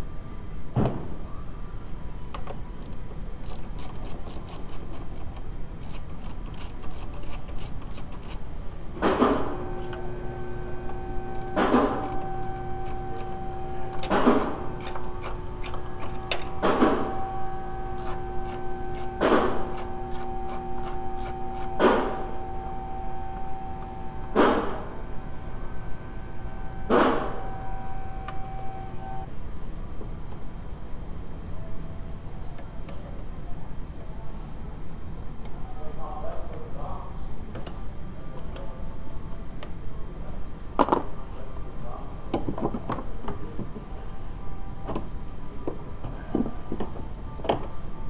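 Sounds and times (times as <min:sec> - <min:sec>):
socket ratchet clicking: 0:02.8 - 0:08.4, 0:18.0 - 0:21.7
held tone: 0:09.5 - 0:29.3.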